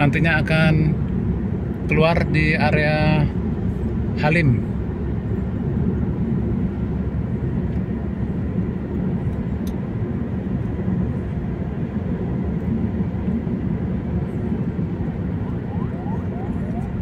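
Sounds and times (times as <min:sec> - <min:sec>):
car road and engine rumble: 0:00.0 - 0:17.0.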